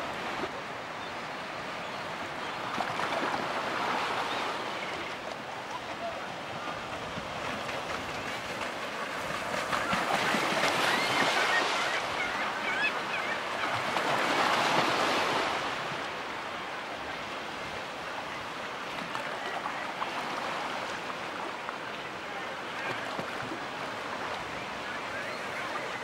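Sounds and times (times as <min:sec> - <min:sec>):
faint gull calls: 0:09.8 - 0:13.8.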